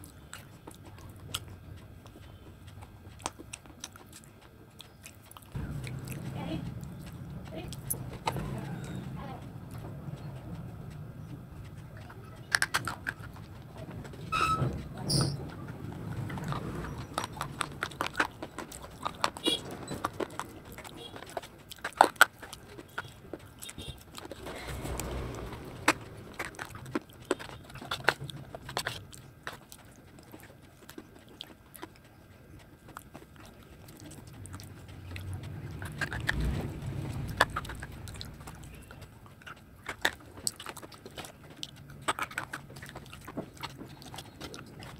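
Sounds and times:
person chewing: 0:00.0 - 0:44.9.

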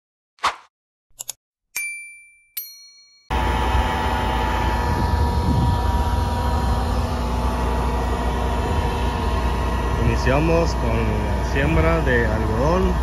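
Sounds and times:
farm machinery engine running: 0:03.3 - 0:13.0.

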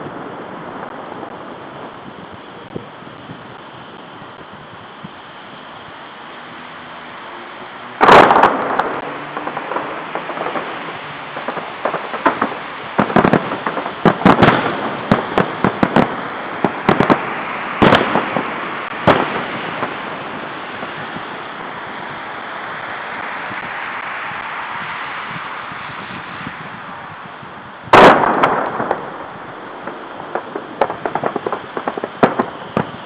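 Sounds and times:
fireworks bangs and crackles: 0:00.0 - 0:33.0
fireworks hiss: 0:00.0 - 0:33.0.

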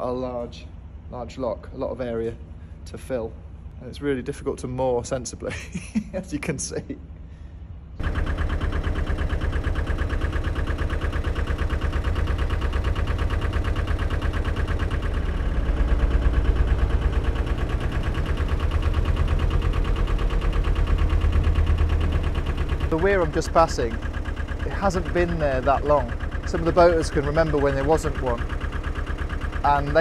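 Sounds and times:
boat diesel engine running: 0:07.2 - 0:30.0.

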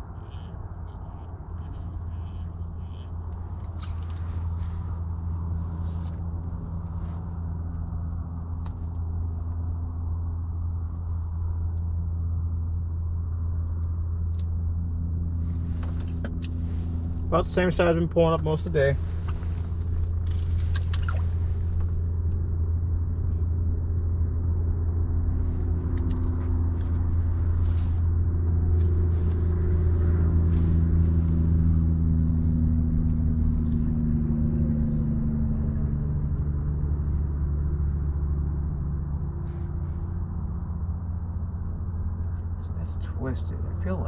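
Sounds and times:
low droning motor rumble: 0:00.0 - 0:44.0.

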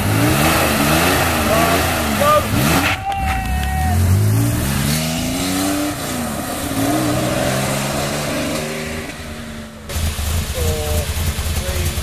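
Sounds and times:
rally car accelerating: 0:00.0 - 0:12.0
low rough engine running: 0:09.8 - 0:12.0.

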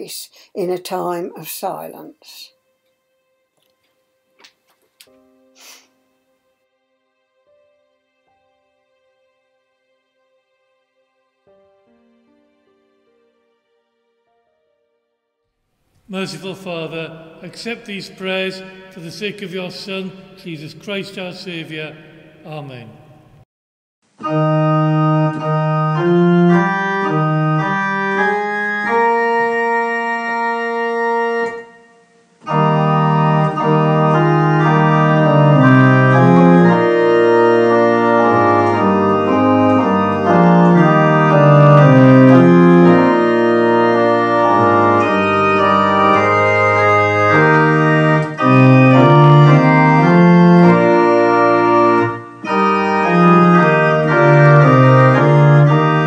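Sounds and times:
organ playing sustained chords: 0:16.1 - 0:23.2, 0:24.2 - 0:56.0.

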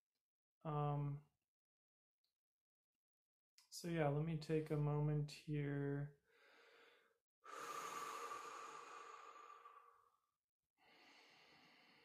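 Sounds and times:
man breathing deeply: 0:06.3 - 0:12.0.

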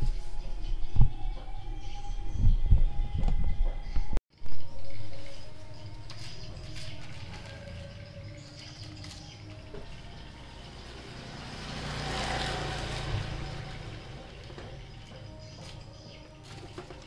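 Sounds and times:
vehicle passing by: 0:05.8 - 0:16.1.

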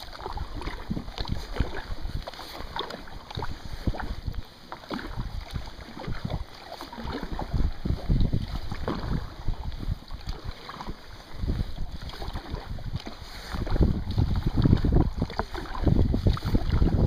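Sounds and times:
paddle splashing in water: 0:00.0 - 0:17.0
wind rumbling on microphone: 0:00.0 - 0:17.0.

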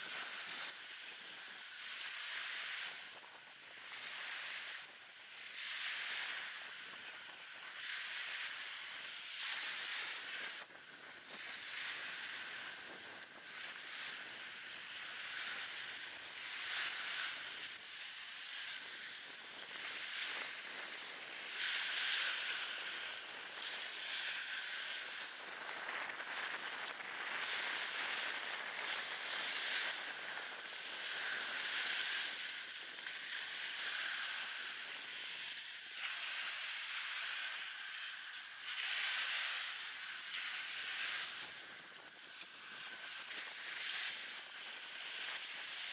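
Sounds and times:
wind on microphone: 0:00.0 - 0:45.9
waves washing up shingle beach: 0:05.8 - 0:37.8.

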